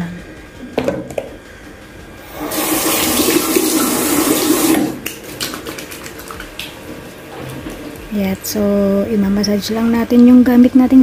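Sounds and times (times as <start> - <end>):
tap water running: 2.3 - 8.4
splashes and wet rubbing: 3.4 - 8.1.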